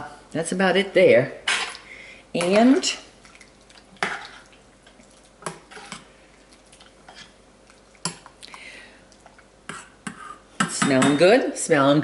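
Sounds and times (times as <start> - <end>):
soft scrape on pot: 5.7 - 6.1.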